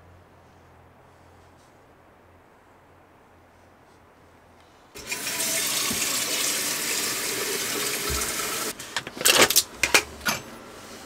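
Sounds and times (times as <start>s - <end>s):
faucet running into metal pot: 5.0s - 8.7s.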